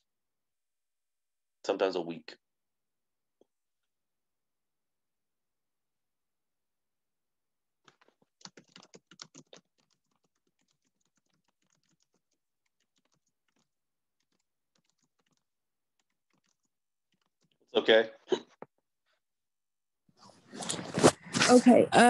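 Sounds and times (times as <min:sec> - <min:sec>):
typing on computer keyboard: 0:07.9 - 0:17.6.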